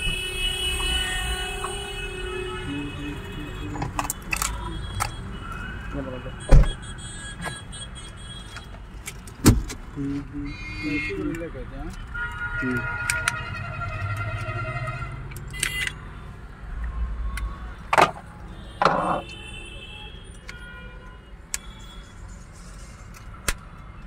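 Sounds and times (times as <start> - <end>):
plastic parts clicking: 3.8 - 5.2, 11.3 - 14.6, 15.3 - 16.0.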